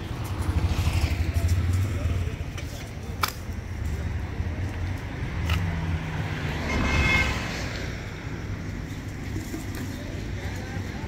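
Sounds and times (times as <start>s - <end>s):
vehicle engine rumbling: 0.0s - 11.0s.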